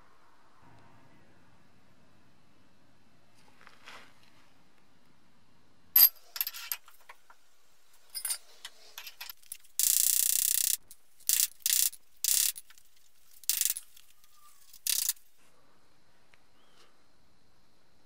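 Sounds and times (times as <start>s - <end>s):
socket ratchet clicking: 9.1s - 14.0s, 14.7s - 15.2s.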